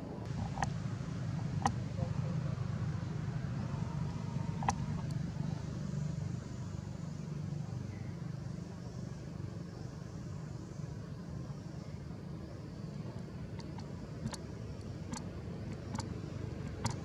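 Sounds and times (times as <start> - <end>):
engine humming: 0.0 - 17.0
sharp clicks: 13.6 - 17.0.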